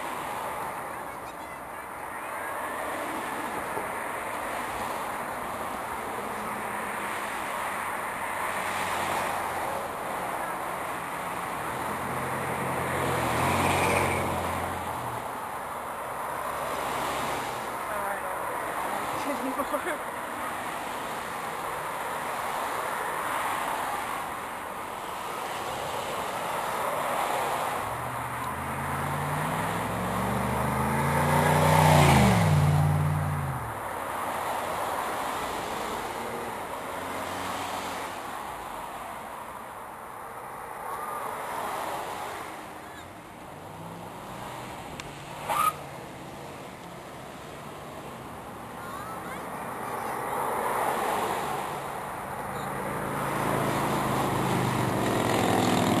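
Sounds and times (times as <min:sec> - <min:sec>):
vehicle passing by: 0:11.7 - 0:15.2, 0:27.0 - 0:38.8, 0:48.8 - 0:56.0.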